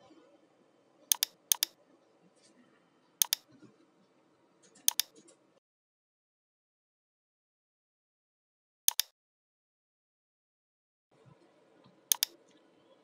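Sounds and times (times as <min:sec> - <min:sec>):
faint room noise: 0:00.0 - 0:05.6, 0:11.1 - 0:13.0
mouse button clicking: 0:01.1 - 0:01.8, 0:03.2 - 0:03.4, 0:04.9 - 0:05.1, 0:08.9 - 0:09.1, 0:12.1 - 0:12.4.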